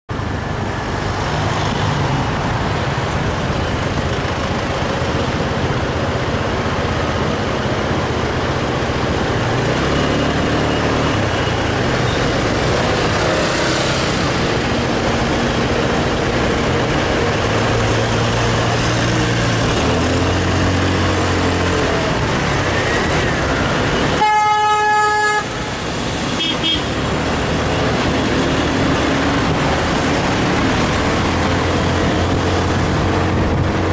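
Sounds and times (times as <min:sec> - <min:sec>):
wind and road noise: 0:00.1 - 0:33.9
scooter engine hum: 0:00.2 - 0:33.9
vehicle horn honking: 0:24.1 - 0:25.6, 0:26.4 - 0:27.0.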